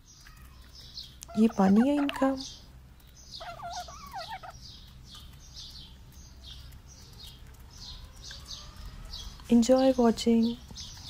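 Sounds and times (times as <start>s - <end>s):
hen call: 3.4s - 4.6s.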